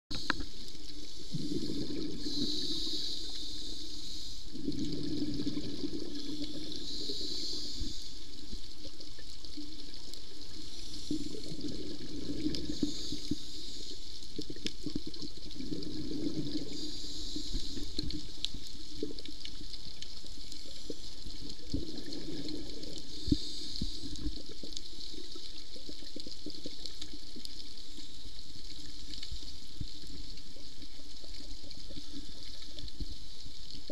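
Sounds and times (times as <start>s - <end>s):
bubbling exhaled air: 0.2s - 9.0s, 9.6s - 19.6s, 20.4s - 27.2s
diver inhaling through regulator: 1.1s - 8.4s, 10.6s - 14.2s, 15.8s - 18.4s, 21.9s - 24.4s.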